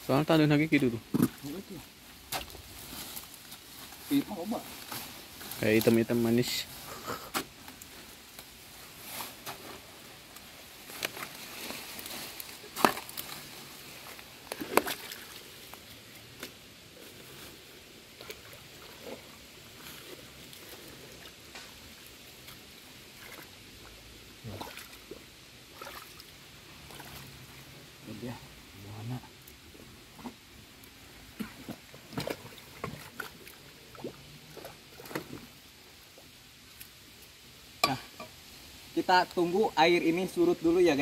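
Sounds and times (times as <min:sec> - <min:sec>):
pond water sloshing: 0:00.5 - 0:28.0, 0:29.3 - 0:38.4
sharp splashes: 0:14.5 - 0:15.4, 0:24.5 - 0:27.4.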